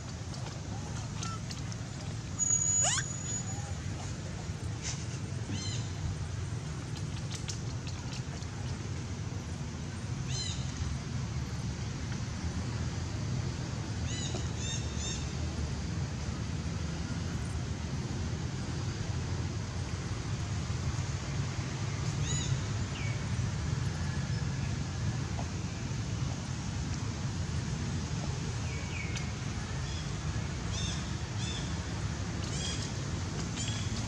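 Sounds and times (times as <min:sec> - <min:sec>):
infant monkey squeaking: 0:02.4 - 0:03.6.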